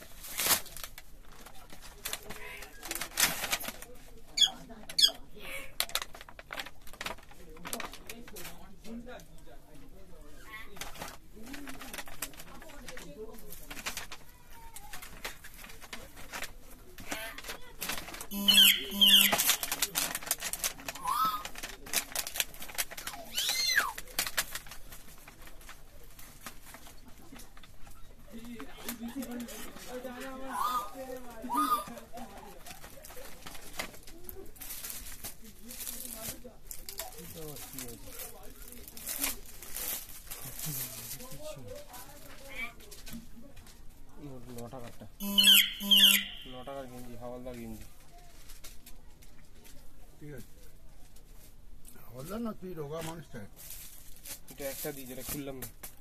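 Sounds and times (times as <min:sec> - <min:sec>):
plastic packaging crinkling: 0:00.0 - 0:05.2, 0:05.8 - 0:09.2, 0:10.7 - 0:30.4, 0:31.0 - 0:43.7, 0:52.2 - 0:56.0
sharp bird chirps: 0:18.3 - 0:19.6, 0:45.2 - 0:46.8.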